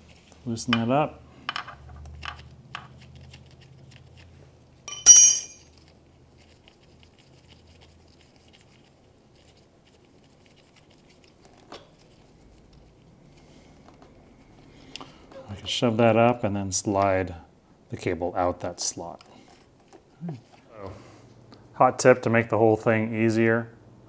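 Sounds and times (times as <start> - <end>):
metal clank with high ring: 4.9 - 5.6.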